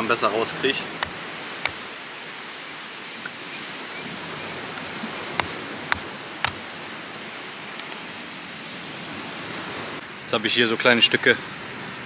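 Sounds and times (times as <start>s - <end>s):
steady background hiss: 0.0s - 12.0s
stone knocking coconut shell: 5.4s - 6.6s.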